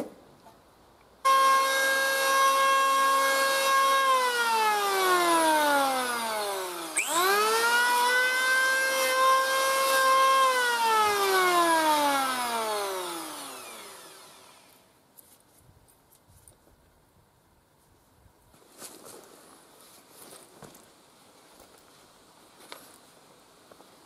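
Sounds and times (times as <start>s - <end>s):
electric planer motor whining: 1.3s - 14.8s.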